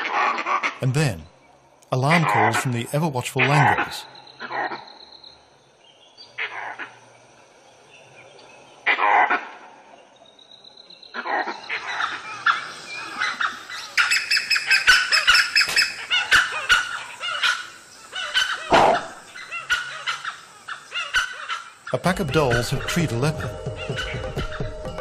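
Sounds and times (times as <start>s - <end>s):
wild dogs yelping and chattering: 11.2s - 23.0s, 23.7s - 24.8s
loud harsh animal call: 11.2s - 24.8s.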